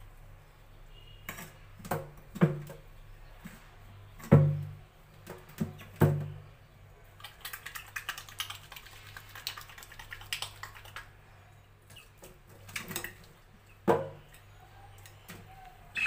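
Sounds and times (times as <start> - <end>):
water splashing in a steel sink: 7.1 - 11.2, 12.6 - 13.5.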